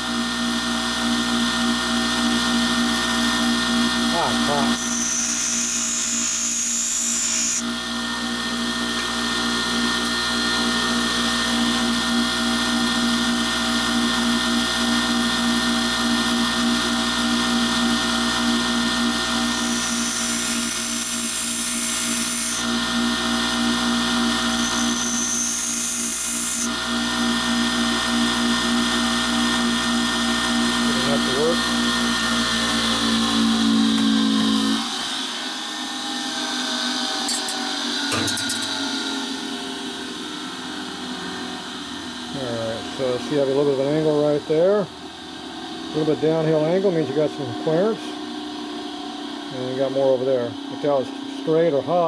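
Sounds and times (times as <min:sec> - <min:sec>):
grinder motor hum: 0:00.0 - 0:48.0
tool grinding hiss: 0:04.1 - 0:07.8, 0:18.2 - 0:27.0, 0:37.2 - 0:38.9.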